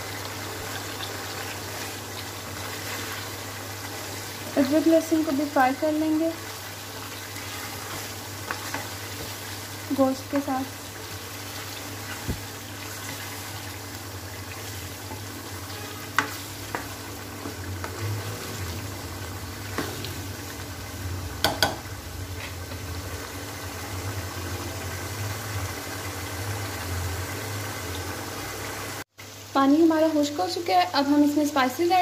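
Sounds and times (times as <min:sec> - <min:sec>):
meat sizzling and bubbling: 0:00.0 - 0:32.0
spatula knocking against pan: 0:21.4 - 0:21.8.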